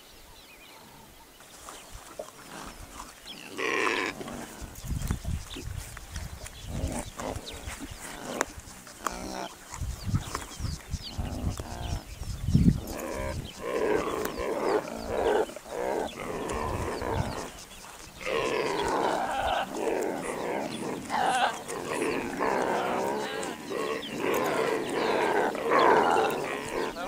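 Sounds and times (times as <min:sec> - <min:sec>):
piglets squealing and grunting: 0:18.2 - 0:27.0.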